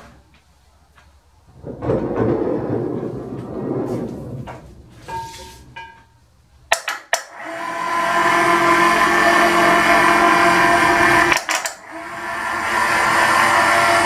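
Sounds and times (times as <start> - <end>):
electric hoist motor whining: 7.2 - 14.0.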